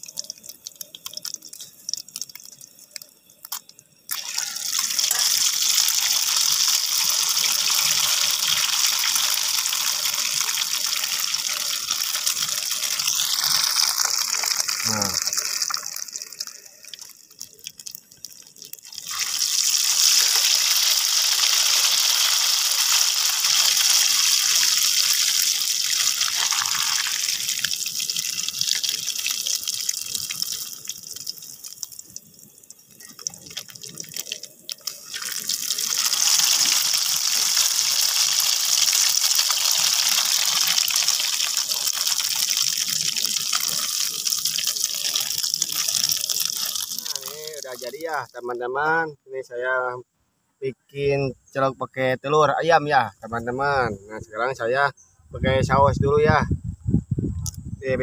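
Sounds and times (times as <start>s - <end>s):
hot oil sizzling in a wok: 0.0s - 48.1s.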